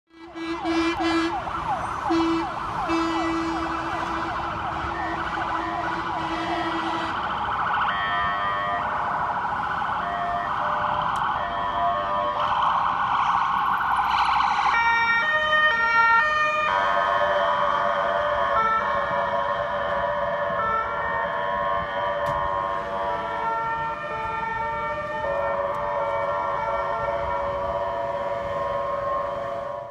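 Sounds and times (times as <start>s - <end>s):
low steady horn tone: 0.1s - 1.4s, 2.1s - 7.2s
emergency vehicle sirens: 0.1s - 29.9s.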